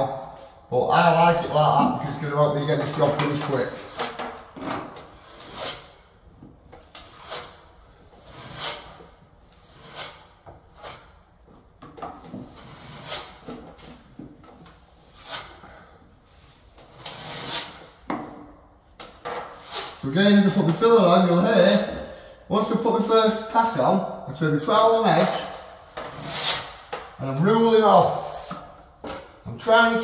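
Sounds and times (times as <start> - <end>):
trowel scraping filler: 1.8 - 6.1, 6.8 - 11.3, 12.2 - 15.8, 16.4 - 18.0, 19.0 - 22.0, 25.1 - 29.3.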